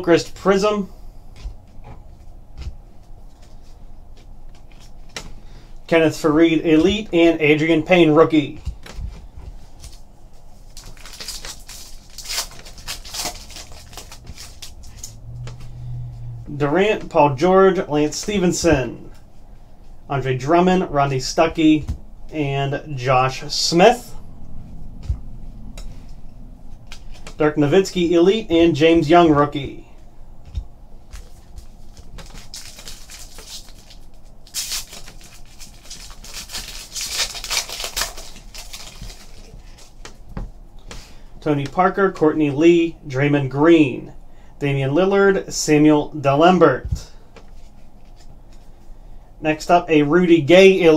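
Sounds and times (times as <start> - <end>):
cards rustling: 8.4 - 15.1, 31.2 - 40.2
foil wrapper crinkling and tearing: 10.6 - 14.9, 31.2 - 40.0.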